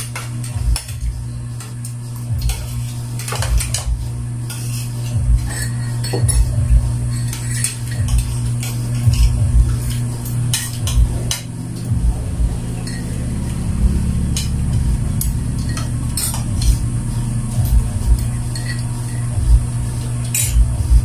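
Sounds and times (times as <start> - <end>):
spoons clinking on plates: 0.0 - 1.0, 1.6 - 3.9, 4.5 - 6.5, 7.1 - 9.3, 9.9 - 11.9, 12.8 - 13.5, 14.2 - 16.8, 18.2 - 19.4, 20.2 - 20.7
steady low hum: 0.0 - 21.0.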